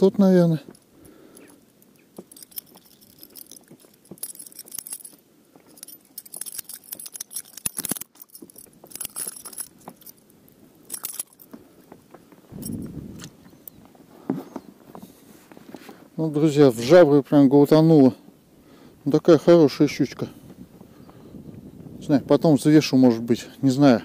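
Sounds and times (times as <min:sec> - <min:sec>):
muffled handling sound: 0:00.4 - 0:16.2
metal lure hooks clinking: 0:00.8 - 0:11.5.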